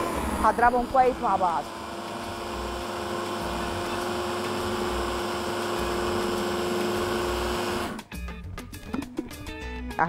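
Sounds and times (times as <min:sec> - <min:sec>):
electric mini chopper running: 0:00.0 - 0:08.1.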